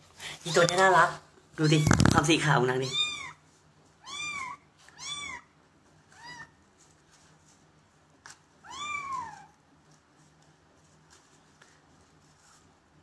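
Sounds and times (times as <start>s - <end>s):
kitten meowing: 1.6s - 3.4s, 4.0s - 5.5s, 8.6s - 9.5s.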